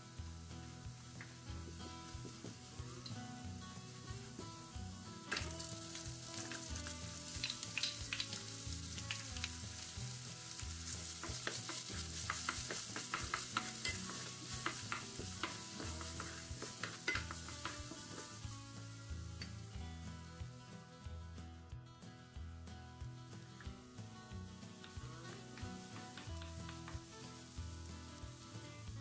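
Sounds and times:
onions sizzling in hot oil: 0.0 - 21.0, 23.3 - 29.0
wooden spoon scraping a pan: 5.3 - 19.6.

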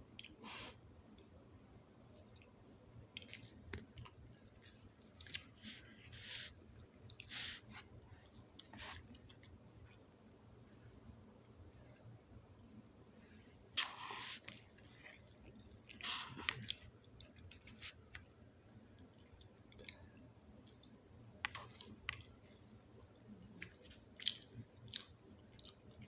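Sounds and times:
person chewing: 3.1 - 9.6, 13.8 - 18.4, 19.0 - 26.0.

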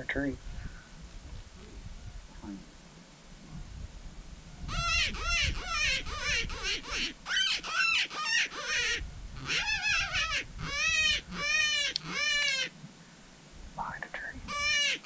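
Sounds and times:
predator call distress cries: 4.7 - 12.8, 14.5 - 15.0.

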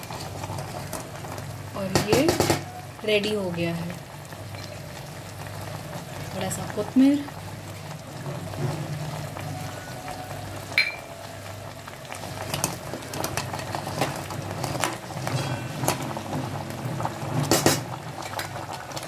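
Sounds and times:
broth boiling in a pot: 0.0 - 19.0
spoon clinking against pot: 10.8 - 11.1.

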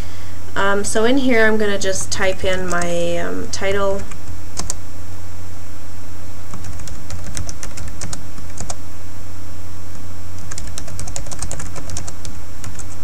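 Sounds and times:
steady low hum: 0.0 - 13.0
typing on a keyboard: 6.5 - 8.8, 10.4 - 13.0.

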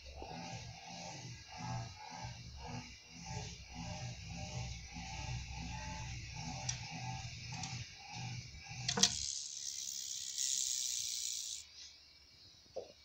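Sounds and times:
low throbbing pulses: 0.0 - 8.9
rattlesnake tail rattling: 6.6 - 11.6.

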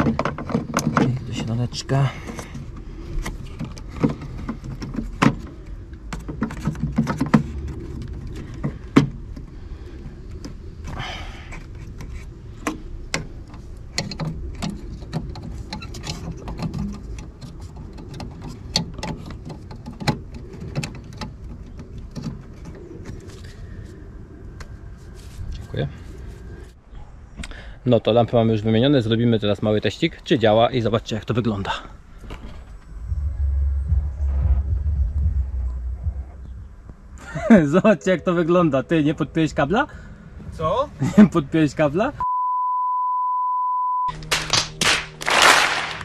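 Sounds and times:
sharp plastic clicks and knocks: 0.0 - 1.2
low background rumble: 0.0 - 27.4, 28.8 - 42.3.

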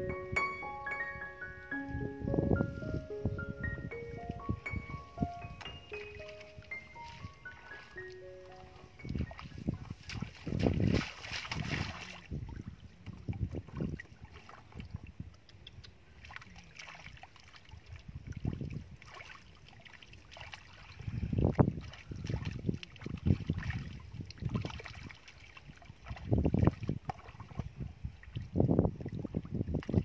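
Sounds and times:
hands splashing in muddy water: 5.6 - 12.4.

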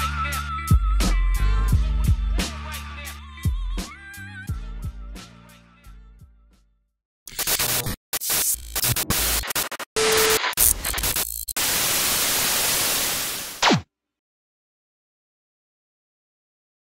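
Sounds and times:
glitching static hiss: 7.3 - 13.8
short beep: 10.0 - 10.7.

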